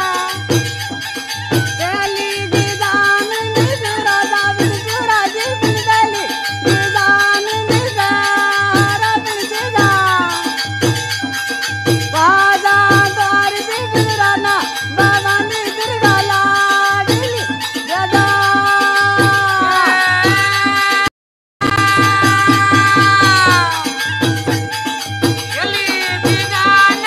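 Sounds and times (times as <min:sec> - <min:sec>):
shaker percussion: 0:00.0 - 0:27.0
steady drumbeat: 0:00.0 - 0:27.0
folk dance music: 0:19.4 - 0:27.0.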